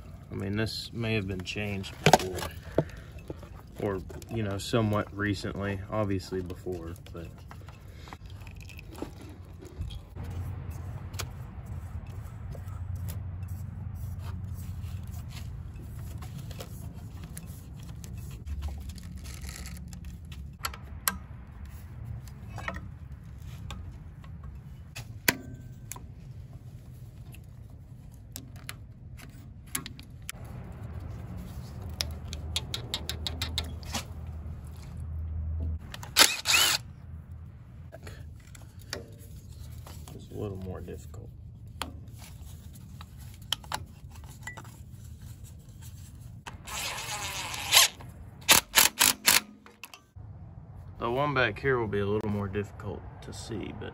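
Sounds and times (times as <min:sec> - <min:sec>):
steady low rumble: 0:00.0 - 0:44.2, 0:50.1 - 0:53.9
tools clicking and tapping: 0:31.9 - 0:33.9.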